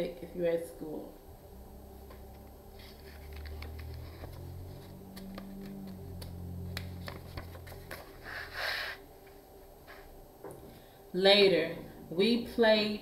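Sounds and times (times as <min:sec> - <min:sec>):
low hum: 0:00.1 - 0:12.2
paper pages rustling: 0:02.3 - 0:08.8.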